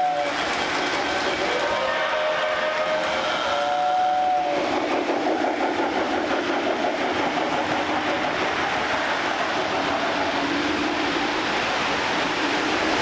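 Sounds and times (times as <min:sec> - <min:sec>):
model train whistle: 0:00.0 - 0:00.5, 0:01.3 - 0:04.7
model trains rumbling on track: 0:00.0 - 0:13.0.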